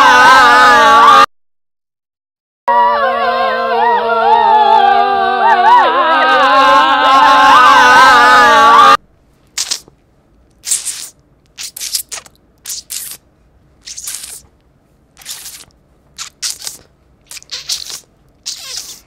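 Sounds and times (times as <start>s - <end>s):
short hissing scratchy noises: 9.6s - 9.9s, 10.6s - 13.2s, 13.8s - 14.5s, 15.2s - 19.0s.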